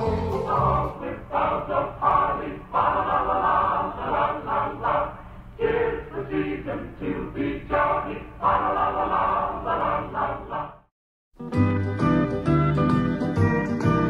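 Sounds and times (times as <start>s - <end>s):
choir singing christmas song: 0.0s - 10.9s.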